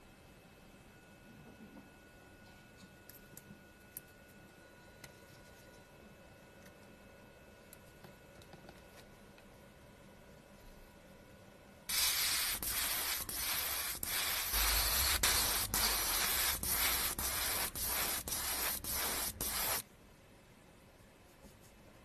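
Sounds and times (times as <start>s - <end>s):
airbrush spraying hiss: 11.9s - 19.8s.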